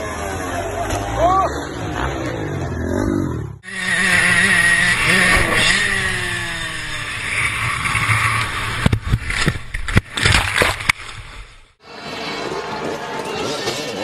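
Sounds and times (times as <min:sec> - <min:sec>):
dirt bike engine revving: 0:00.0 - 0:10.8
sharp knocks and thumps: 0:07.8 - 0:11.2.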